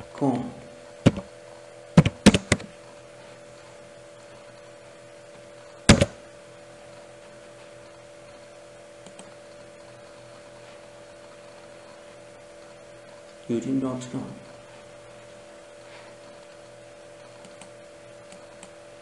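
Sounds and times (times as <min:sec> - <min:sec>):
electrical hum: 0:00.0 - 0:19.0
keyboard keystrokes: 0:02.0 - 0:02.7, 0:05.9 - 0:06.2.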